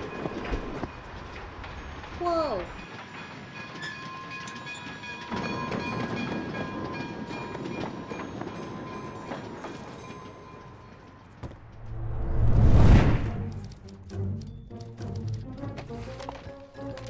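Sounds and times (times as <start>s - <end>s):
train rumbling and clattering: 0.0s - 17.0s.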